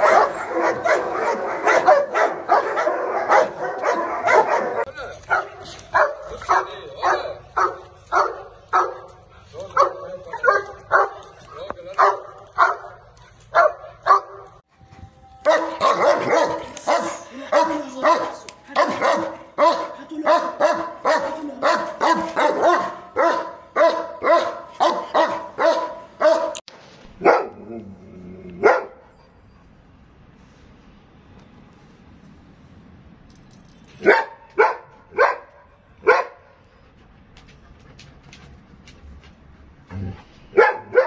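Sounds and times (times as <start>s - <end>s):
dogs barking: 0.0s - 14.6s, 15.4s - 26.6s, 27.2s - 27.6s, 28.6s - 29.1s, 34.0s - 36.5s, 40.5s - 41.0s.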